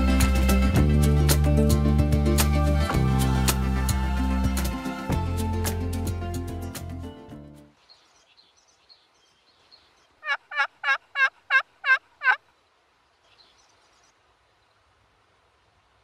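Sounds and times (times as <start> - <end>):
faint songbird chirps: 7.7 - 10.4, 12.5 - 14.9
turkey yelps: 10.2 - 12.4.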